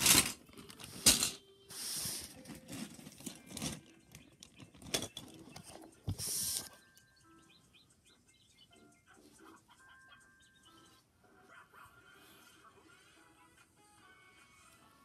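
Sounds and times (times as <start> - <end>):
plastic toys clacking: 0.0 - 1.4, 2.2 - 6.7.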